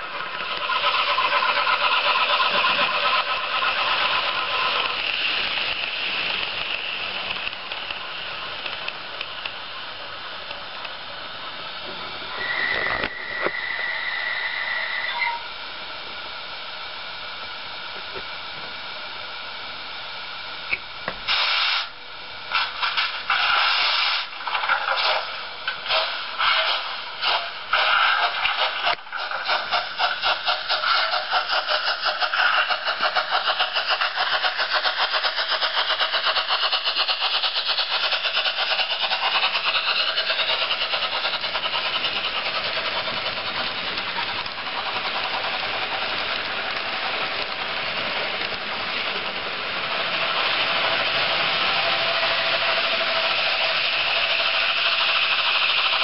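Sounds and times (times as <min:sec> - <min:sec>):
steam exhaust chuffs: 0:00.0 - 0:17.0, 0:21.2 - 0:56.0
steady steam hiss: 0:00.0 - 0:56.0
high train whistle: 0:12.3 - 0:15.6.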